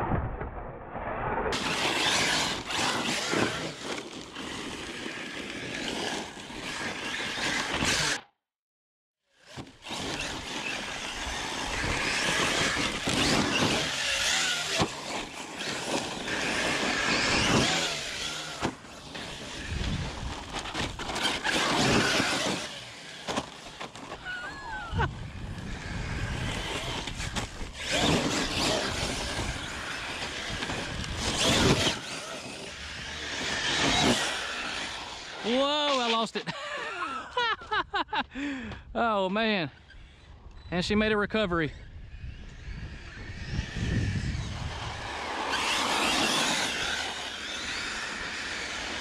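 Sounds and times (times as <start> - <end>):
rc car motor whining: 1.6 - 8.2, 9.3 - 36.2, 41.8 - 49.0
tyres sliding on gravel: 1.6 - 8.2, 9.5 - 24.7, 25.8 - 36.5, 44.9 - 49.0.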